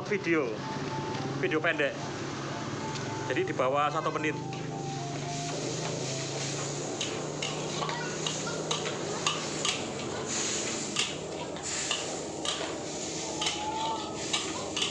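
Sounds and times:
frying sizzle: 5.1 - 14.9.

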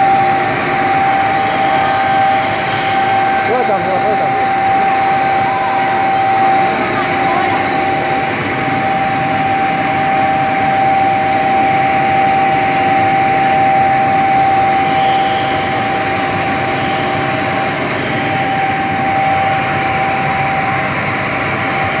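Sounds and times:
constant machine whine: 0.0 - 22.0
machinery droning: 0.0 - 22.0.

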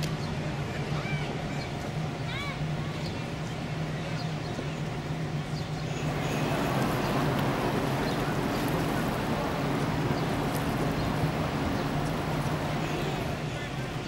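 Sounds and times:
wind: 0.0 - 14.0
ship engines humming: 5.9 - 14.0
water noise: 6.0 - 13.7.

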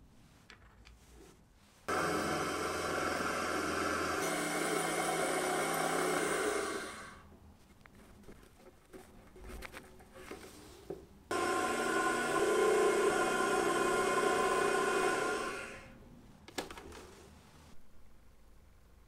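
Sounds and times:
milling spindle drilling whine: 1.9 - 7.2, 11.3 - 15.9.

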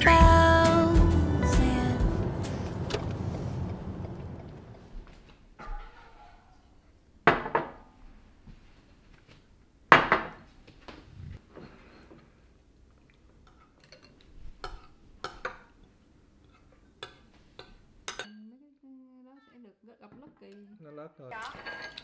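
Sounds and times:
bowls clunking on glass table: 7.3 - 7.9
chopsticks and spoons clinking bowls: 13.5 - 18.4, 21.4 - 22.0.

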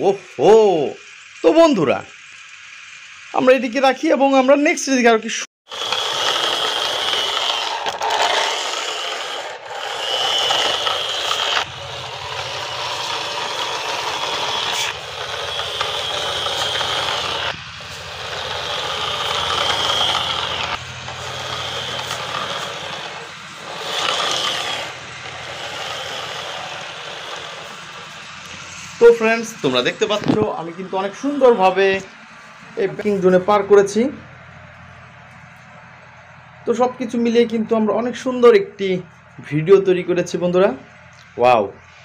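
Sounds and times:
plastic toy wheels rattling on concrete: 5.7 - 28.8.

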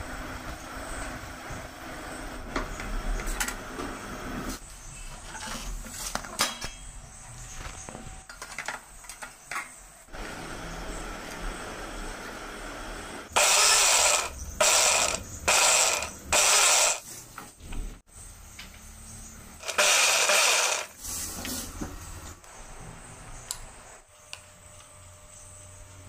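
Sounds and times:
mixer grinder motor pulsing: 10.1 - 17.0, 19.6 - 21.0.

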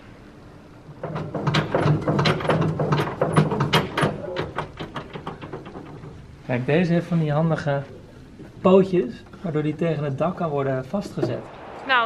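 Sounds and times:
wooden shelves rattling and knocking: 0.9 - 6.4.

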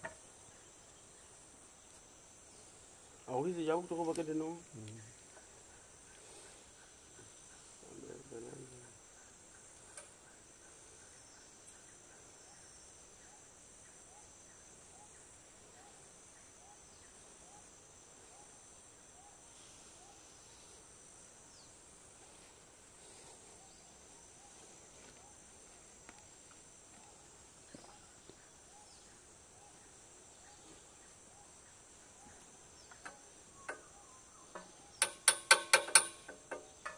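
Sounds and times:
insect chorus: 0.0 - 36.9
short repeating insect call: 0.0 - 36.9.

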